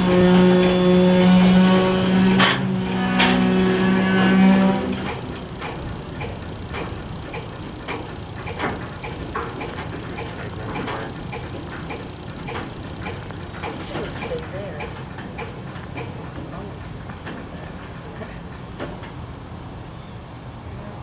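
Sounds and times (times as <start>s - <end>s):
locomotive air horn: 0.0s - 5.8s
repeated clicks: 0.0s - 19.2s.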